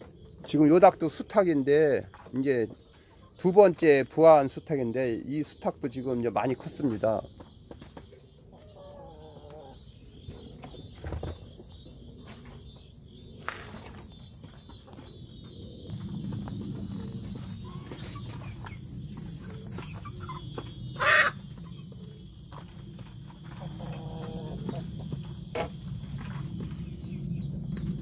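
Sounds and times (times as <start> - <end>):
chickens clucking: 0.3 - 11.6, 16.3 - 27.1
chickens scratching: 16.3 - 27.1
chicken squawk: 19.7 - 21.8, 23.5 - 24.9.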